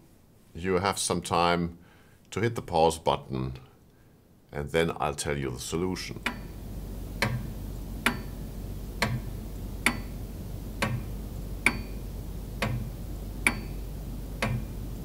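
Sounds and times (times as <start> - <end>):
clock ticking: 6.2 - 6.5, 7.2 - 8.4, 9.0 - 10.2, 10.8 - 12.0, 12.6 - 14.8.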